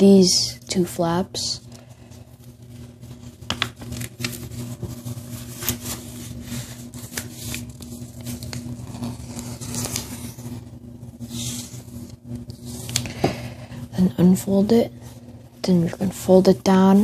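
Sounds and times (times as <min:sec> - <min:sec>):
steady low hum: 0:00.0 - 0:17.0
paper rustling and crinkling: 0:01.6 - 0:13.5.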